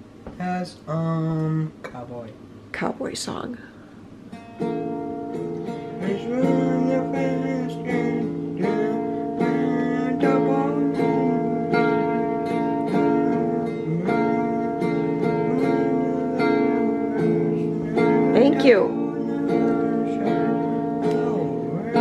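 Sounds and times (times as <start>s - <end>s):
acoustic guitar strumming: 3.8s - 22.0s.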